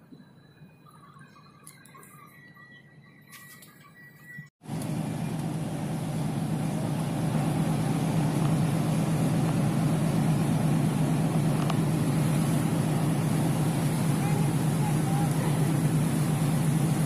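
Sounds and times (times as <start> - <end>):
ship engines droning: 0.0 - 17.0
wind: 0.0 - 17.0
water noise: 4.7 - 17.0.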